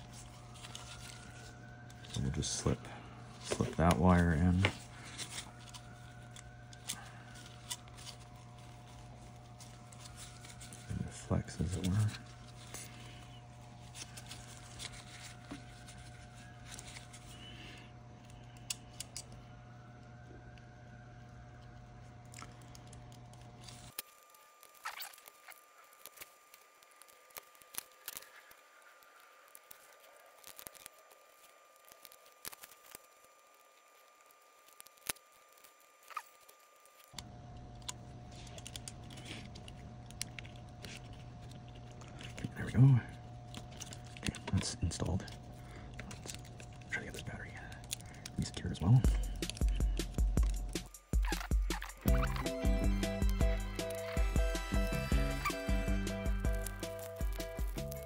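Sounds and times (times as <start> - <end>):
low electrical hum: 0.0 - 58.0
fingers handling plastic parts: 43.5 - 52.4.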